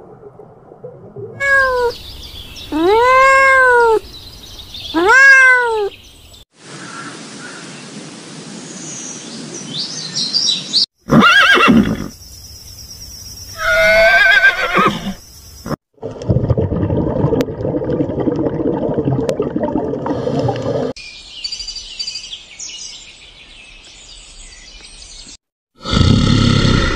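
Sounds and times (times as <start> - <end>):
horse whinnying: 1.4 - 2.0, 11.1 - 12.1, 13.6 - 15.2.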